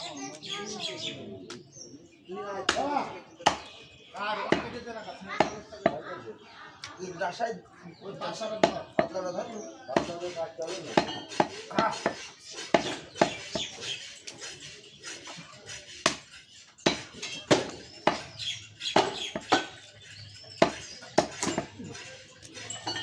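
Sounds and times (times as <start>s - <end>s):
cleaver chopping into wooden block: 3.5s - 3.7s, 10.9s - 13.7s, 16.9s - 18.3s, 18.9s - 19.8s, 20.6s - 21.8s.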